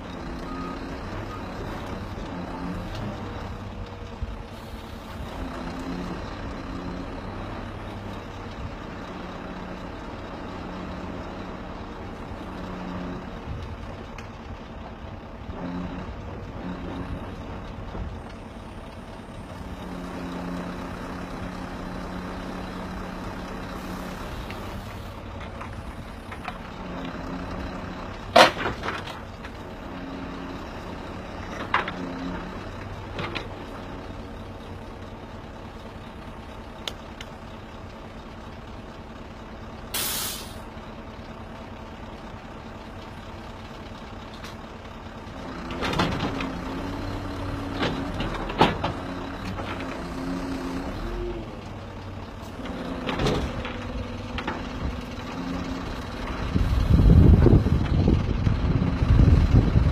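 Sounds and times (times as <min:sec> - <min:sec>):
crane engine hum: 0:00.0 - 0:59.9
hiss of air: 0:39.9 - 0:40.6
wind rumbling on microphone: 0:56.3 - 0:59.9.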